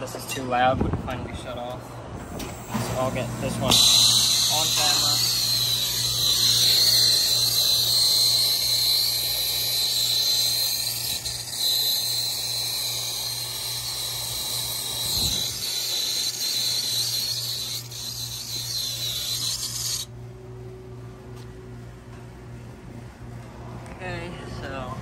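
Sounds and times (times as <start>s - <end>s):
torch flame hissing: 2.4s - 20.1s.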